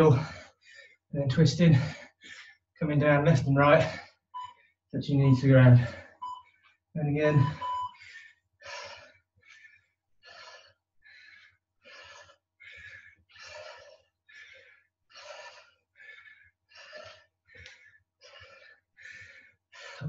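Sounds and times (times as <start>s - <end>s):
person breathing hard: 0.1s - 1.1s, 1.8s - 2.6s, 7.4s - 20.0s.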